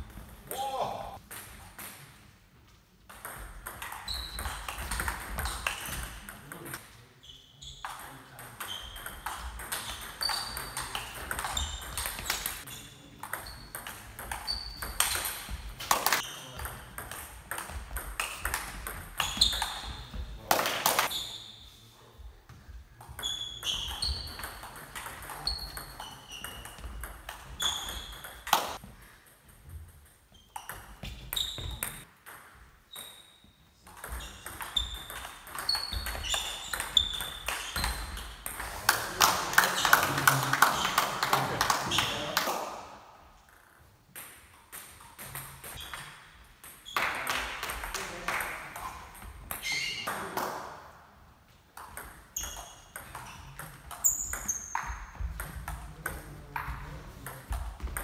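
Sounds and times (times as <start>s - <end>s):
table tennis ball pinging: 3.1s - 6.8s, 7.8s - 21.1s, 23.0s - 42.1s, 51.8s - 58.0s.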